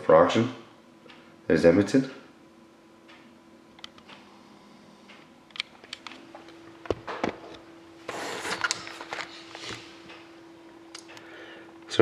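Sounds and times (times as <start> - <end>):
steady low hum: 0.0 - 12.0
rustling scrape: 8.1 - 9.9.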